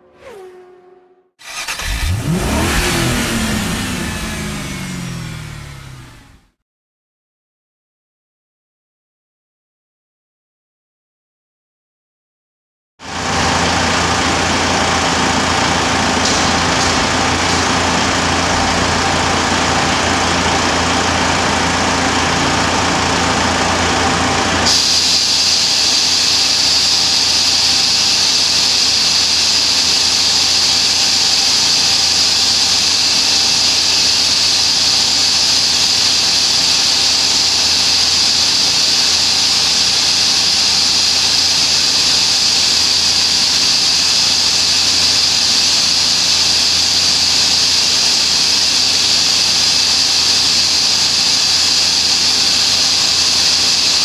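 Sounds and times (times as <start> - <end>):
diesel engine idling: 1.4 - 6.5, 13.1 - 54.0
high-pitched rush of air: 13.1 - 54.0.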